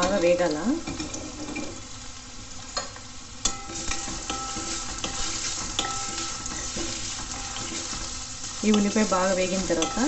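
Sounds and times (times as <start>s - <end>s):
onions sizzling in hot oil: 0.0s - 10.0s
metal spatula scraping pan: 3.5s - 9.1s.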